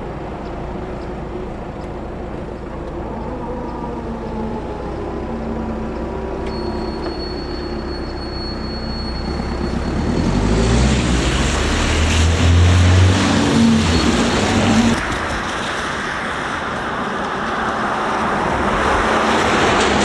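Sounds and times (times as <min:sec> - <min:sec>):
car passing close by: 0:09.4 - 0:15.0.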